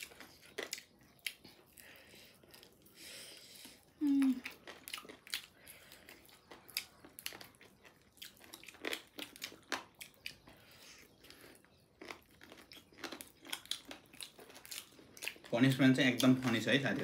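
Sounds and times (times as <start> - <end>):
mouth and food clicks: 0.0 - 1.8
people chewing and crunching food: 0.0 - 17.0.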